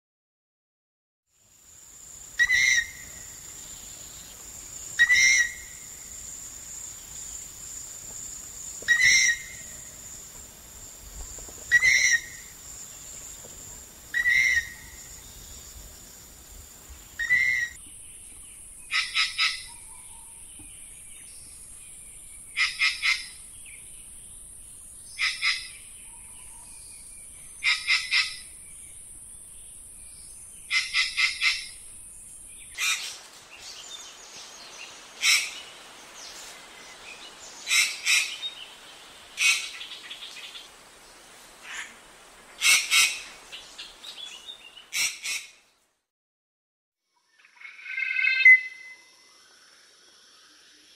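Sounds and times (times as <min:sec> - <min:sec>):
bird calling: 0:02.4 - 0:04.3, 0:04.9 - 0:06.2, 0:08.8 - 0:10.0, 0:11.3 - 0:13.4, 0:14.1 - 0:15.5, 0:17.0 - 0:21.5, 0:22.3 - 0:23.8, 0:25.1 - 0:28.6, 0:30.6 - 0:31.9.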